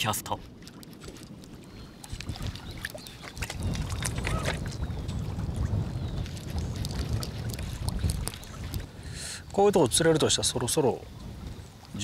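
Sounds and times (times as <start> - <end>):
small splashes: 0.0 - 9.1
water lapping against boat hull: 0.0 - 12.0
wind rumbling on microphone: 0.0 - 12.0.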